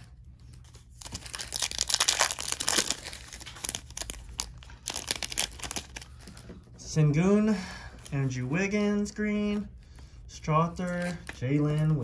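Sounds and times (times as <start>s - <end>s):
foil wrapper crinkling: 0.8s - 6.4s.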